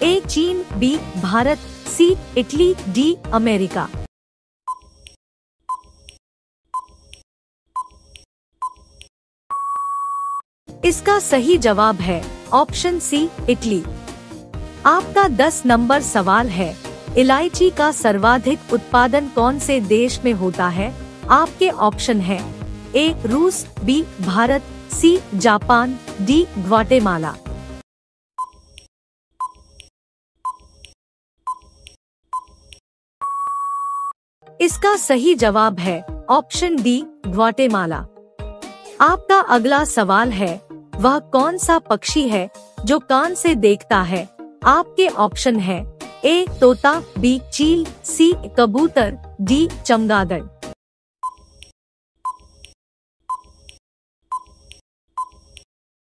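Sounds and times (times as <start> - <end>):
ticking beep with ringing tone: 4.7 - 4.9, 5.7 - 6.0, 6.8 - 7.0, 7.8 - 8.0, 9.5 - 10.4, 28.4 - 28.6, 29.4 - 29.6, 30.4 - 30.7, 32.3 - 32.6, 33.2 - 34.2, 51.2 - 51.5, 52.3 - 52.5, 53.3 - 53.6, 54.3 - 54.6, 55.2 - 55.4
long steady beep: 9.5 - 10.4, 33.2 - 34.2.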